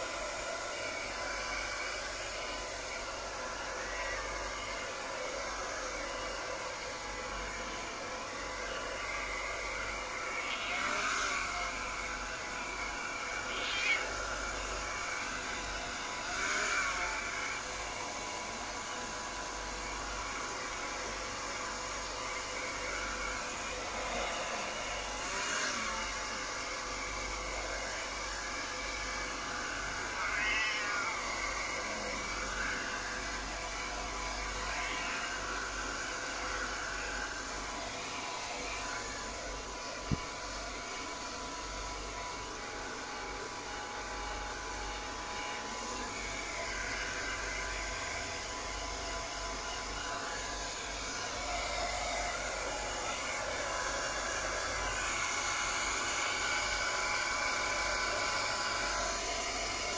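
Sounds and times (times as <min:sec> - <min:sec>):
hair dryer running: 0:00.0 - 0:59.9
kitten meowing: 0:13.5 - 0:14.1, 0:30.3 - 0:31.1.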